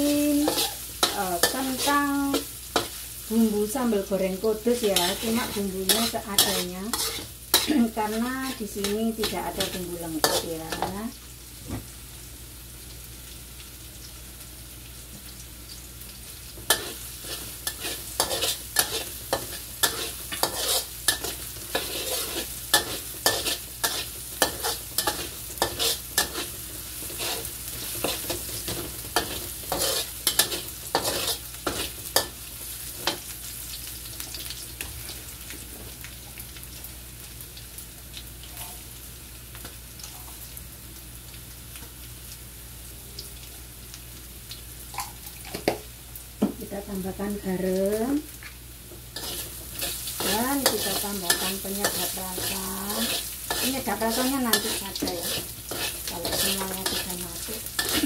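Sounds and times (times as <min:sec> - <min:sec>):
food sizzling in oil: 0:00.0 - 0:58.0
metal spatula scraping wok: 0:00.1 - 0:03.0, 0:04.8 - 0:11.0, 0:16.7 - 0:32.3, 0:49.2 - 0:58.0.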